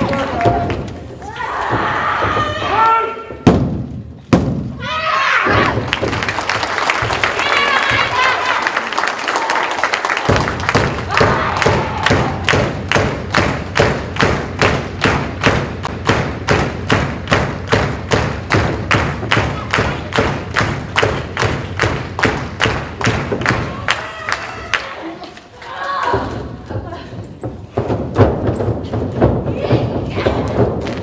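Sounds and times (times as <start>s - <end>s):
audience clapping in unison: 0.0s - 1.0s, 5.6s - 25.6s.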